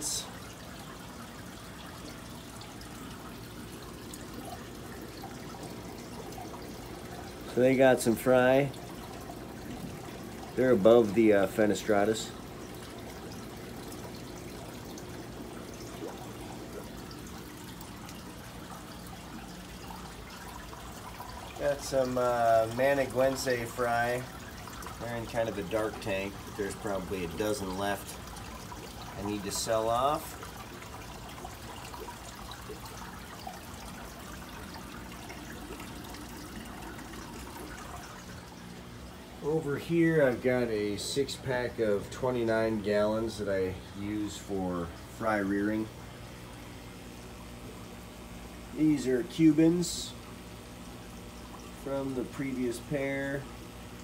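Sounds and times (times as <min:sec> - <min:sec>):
aquarium water trickling: 0:00.0 - 0:54.0.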